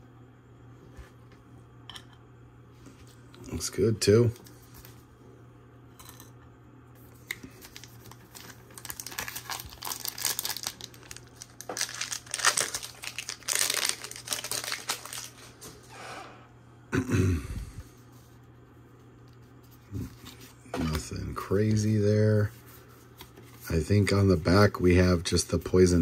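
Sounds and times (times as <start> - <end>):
foil wrapper crinkling: 7.3 - 15.8.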